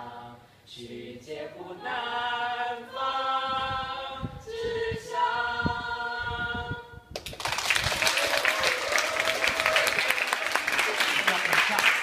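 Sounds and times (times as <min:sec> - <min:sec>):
small group singing held notes: 0:00.0 - 0:07.0
applause: 0:07.2 - 0:12.0.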